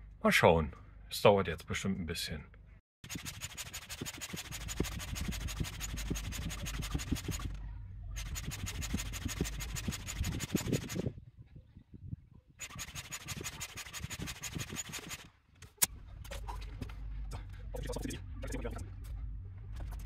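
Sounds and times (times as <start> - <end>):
air pump pulsing: 3.0 - 7.6, 8.2 - 11.1, 12.6 - 15.3.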